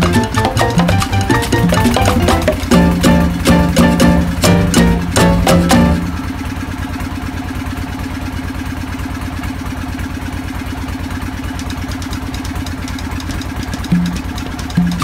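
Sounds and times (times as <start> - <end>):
boat engine chugging: 0.0 - 15.0.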